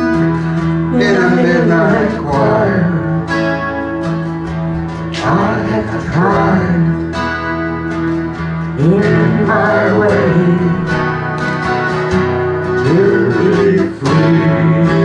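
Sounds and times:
person singing: 0.0s - 4.0s, 4.9s - 7.2s, 8.7s - 11.3s, 12.8s - 15.0s
acoustic guitar strumming: 0.0s - 15.0s.

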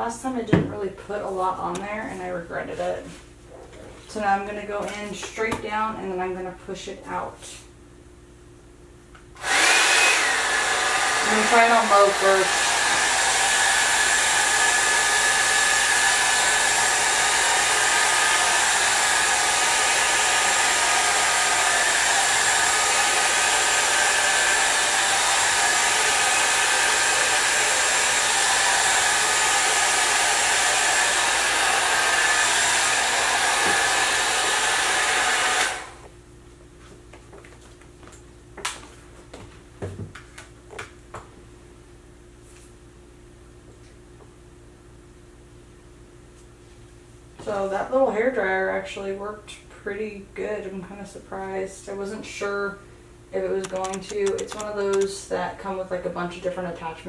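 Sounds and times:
hair dryer whirring: 9.4s - 36.1s, 53.6s - 55.2s
faint clicks and taps: 53.6s - 55.1s.

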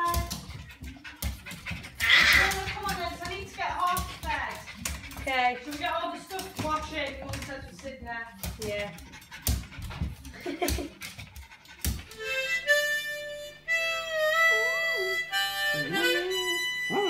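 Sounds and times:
harmonica playing chords: 12.1s - 17.0s.

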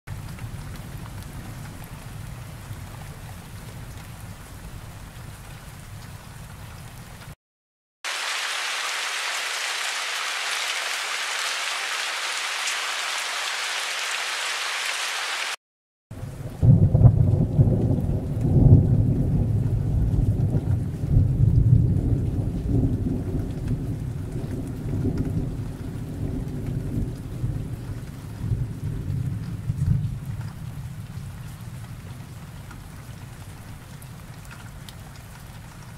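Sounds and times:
heavy rain: 0.1s - 7.4s, 8.0s - 15.6s, 16.2s - 35.9s
thunder rumbling: 16.5s - 30.8s.

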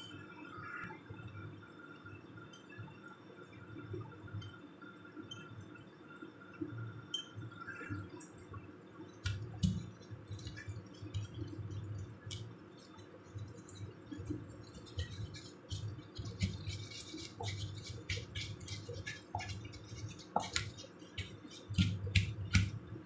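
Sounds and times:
pestle grinding in wooden mortar: 9.2s - 23.0s.

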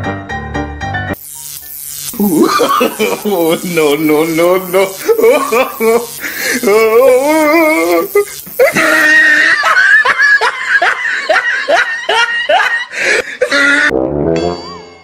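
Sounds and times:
man laughing loudly: 2.2s - 13.9s
brass music: 13.9s - 15.0s.

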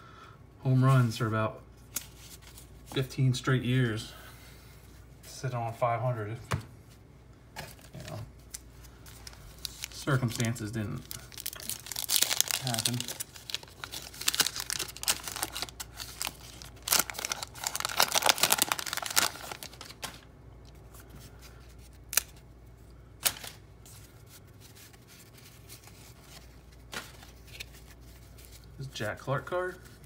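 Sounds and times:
wax paper wrapper crinkling: 7.7s - 22.5s, 23.2s - 30.0s.

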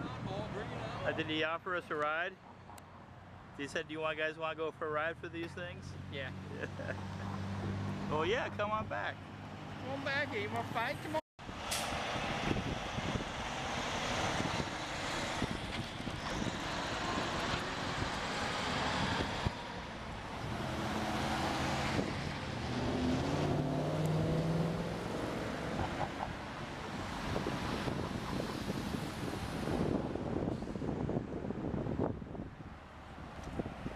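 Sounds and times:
road noise: 0.0s - 33.9s
trucks driving past: 0.0s - 33.9s
car passing close: 11.5s - 32.1s.

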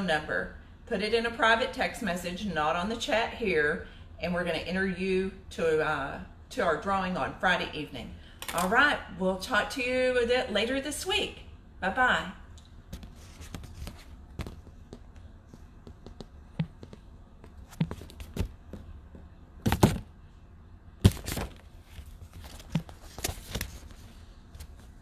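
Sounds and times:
fingers tapping and rubbing phone: 12.9s - 20.0s.

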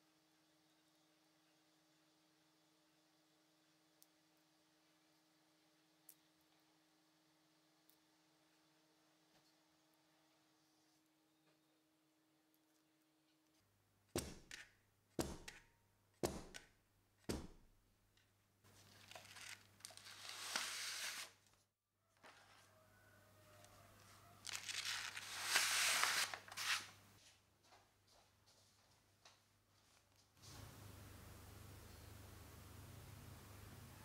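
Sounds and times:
paper sliding scrapes: 18.8s - 21.4s, 24.5s - 27.0s.

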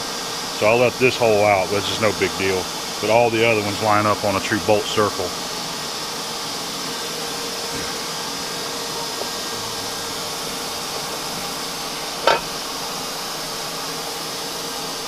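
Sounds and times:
faint hum: 0.0s - 15.0s
fan-like shop hiss: 0.0s - 15.0s
metal clank: 12.2s - 12.6s.

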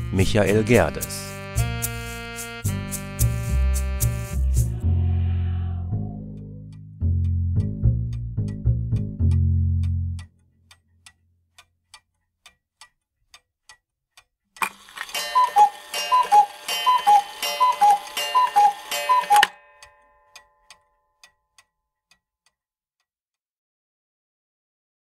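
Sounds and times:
clock ticking: 6.3s - 22.6s
two-tone alarm ringing: 15.1s - 20.3s.

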